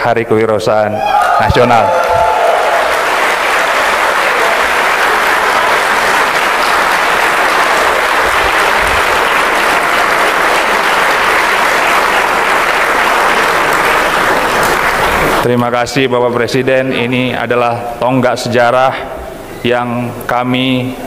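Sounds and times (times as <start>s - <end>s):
audience applauding: 1.2s - 15.5s.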